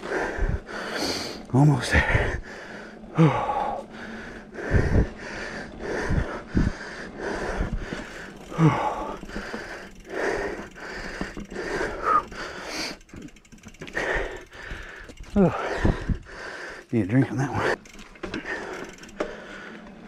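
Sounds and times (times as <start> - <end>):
person panting: 0.0 - 20.0
voiced gasps: 13.9 - 16.9.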